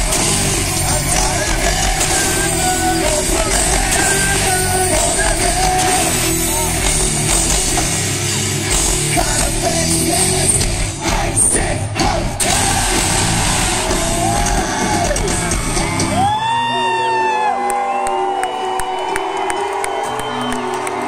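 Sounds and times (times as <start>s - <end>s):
person singing: 0.0s - 6.9s, 8.8s - 17.3s
hard rock band playing: 0.0s - 17.2s.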